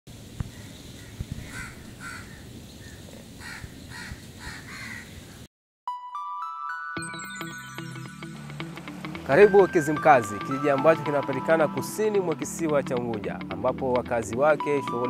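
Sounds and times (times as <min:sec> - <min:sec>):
crows cawing: 0:00.5 - 0:05.1
bell-like music: 0:05.9 - 0:12.6, 0:14.6 - 0:15.0.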